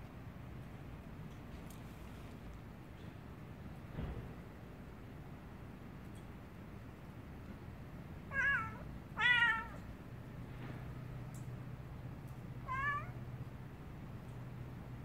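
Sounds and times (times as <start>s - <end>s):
cat meowing: 8.3s - 9.8s, 12.6s - 13.2s.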